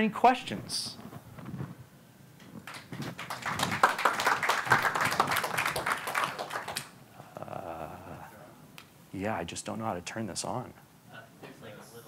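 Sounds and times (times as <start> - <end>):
audience applauding: 2.6 - 7.0.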